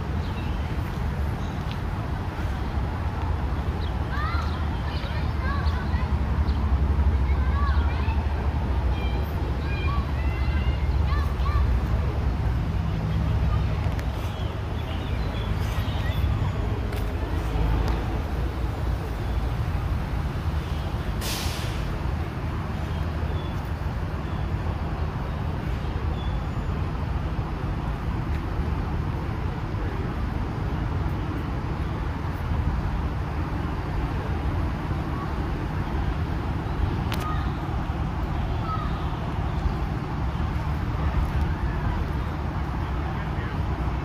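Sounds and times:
road traffic rumble: 0:00.0 - 0:44.0
sharp hiss: 0:21.1 - 0:22.1.

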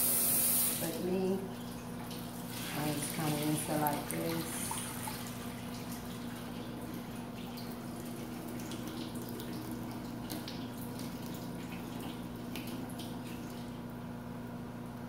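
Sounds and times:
tap water running and splashing: 0:00.0 - 0:14.1
water dripping and sloshing: 0:00.8 - 0:14.2.

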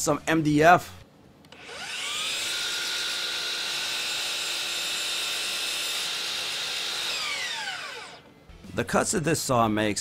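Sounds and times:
miter saw whining: 0:01.5 - 0:08.3
saw blade cutting board: 0:01.6 - 0:08.3.

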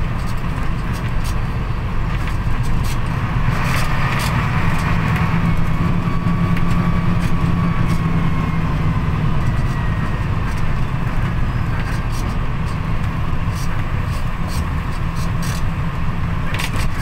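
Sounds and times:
bus engine drone: 0:00.0 - 0:17.0.

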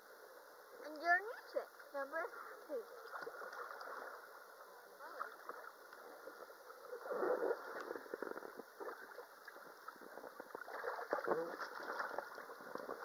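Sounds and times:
sea water sloshing and splashing: 0:02.8 - 0:04.4, 0:05.0 - 0:13.0.

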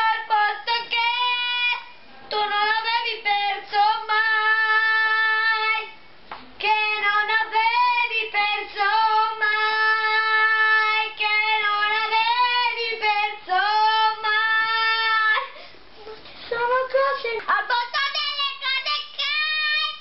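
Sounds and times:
boy singing solo: 0:16.5 - 0:20.0.

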